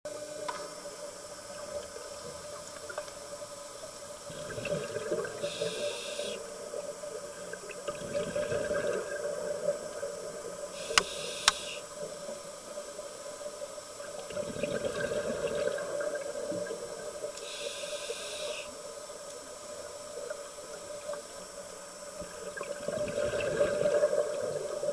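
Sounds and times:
steady hum: 0.1 - 24.9
underwater breathing bubbles: 4.3 - 6.5, 7.9 - 9.7, 14.3 - 16.8, 22.5 - 24.9
regulator hissing: 5.4 - 6.5, 10.7 - 11.9, 17.4 - 18.8
sharp clicks: 10.9 - 11.8.

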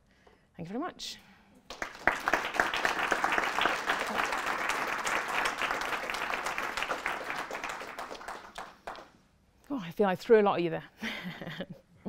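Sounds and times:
audience applauding: 1.7 - 9.1.

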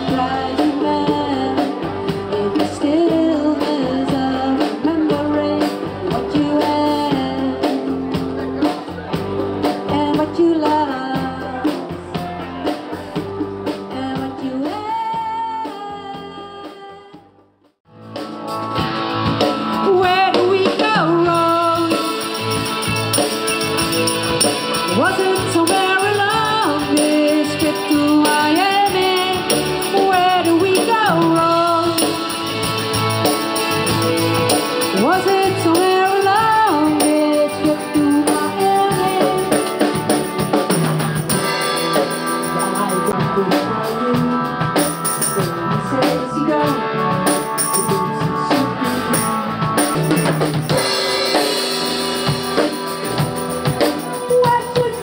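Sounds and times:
music with a singer: 0.0 - 17.3, 18.6 - 55.0
cymbals: 21.4 - 43.1.

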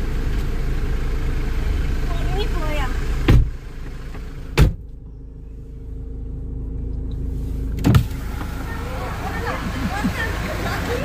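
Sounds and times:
car engine idling: 0.0 - 11.0
car door slamming: 3.2 - 3.6, 4.2 - 4.9, 7.7 - 8.7.

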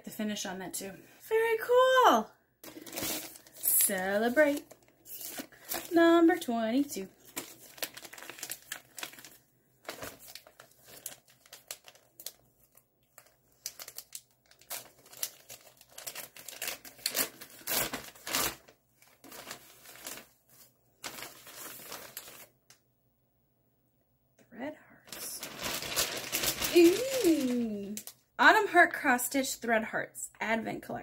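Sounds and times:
wrapping paper crinkling and tearing: 2.6 - 22.5, 25.1 - 28.2.

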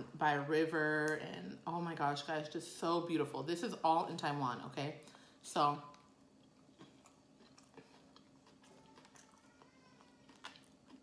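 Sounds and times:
person chewing food: 5.9 - 11.0.

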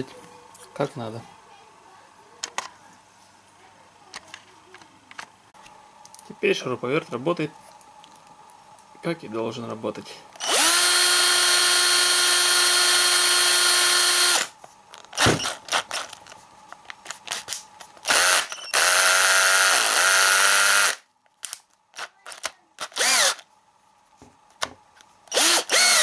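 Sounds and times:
cordless drill motor running: 10.4 - 16.1, 18.0 - 21.0, 22.0 - 23.5, 25.3 - 26.0.

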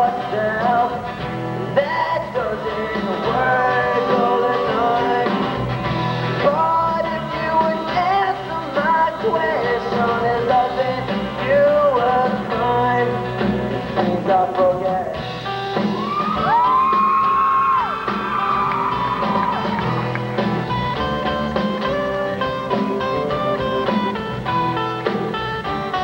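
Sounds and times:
male singer: 0.0 - 15.3
acoustic and electric guitars: 0.0 - 26.0
drums: 0.0 - 26.0.

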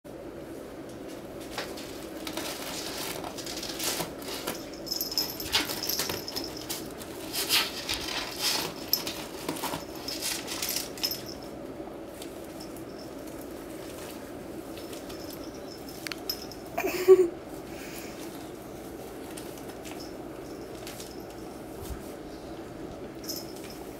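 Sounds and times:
plastic bag rustling: 1.4 - 11.4
small jingle bell tinkling: 3.7 - 11.6, 12.4 - 14.1, 14.7 - 17.2, 19.8 - 21.8, 23.2 - 23.9.

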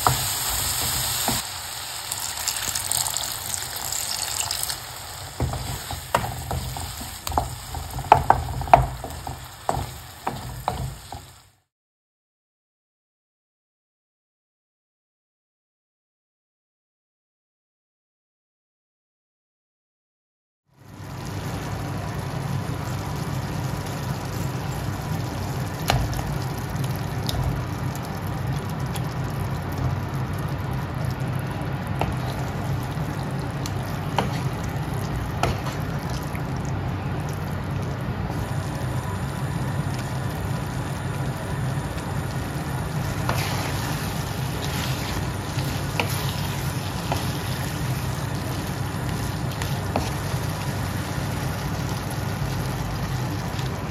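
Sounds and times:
food sizzling and bubbling: 0.0 - 11.7, 20.8 - 53.9
wooden spatula clicking on pan: 5.4 - 11.3.

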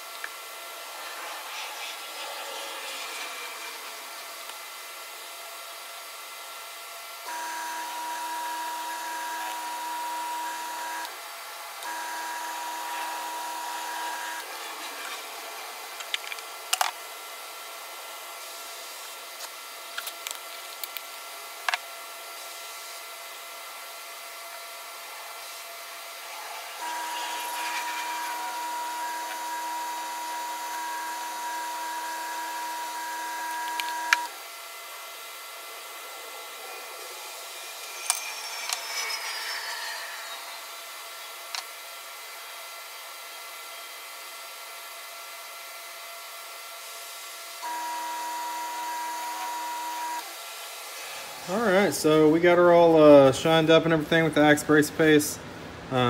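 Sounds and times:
wood lathe motor whining: 0.0 - 5.4, 7.2 - 16.9, 26.1 - 35.6, 36.3 - 42.3, 47.6 - 50.4.

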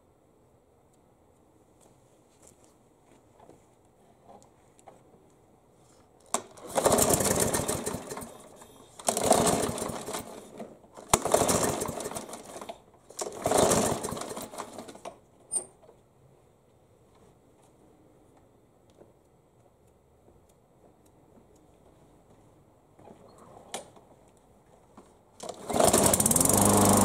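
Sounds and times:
lawn mower engine firing and dying: 6.3 - 15.1, 25.4 - 27.0
pull starter: 6.4 - 15.0, 25.4 - 27.0.

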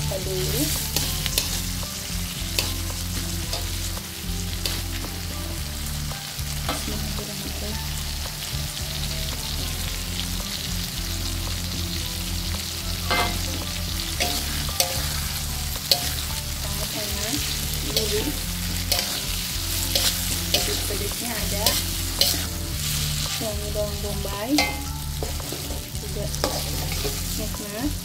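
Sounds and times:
food sizzling in a wok: 0.0 - 28.0
spatula clinking on pan: 24.6 - 27.3.

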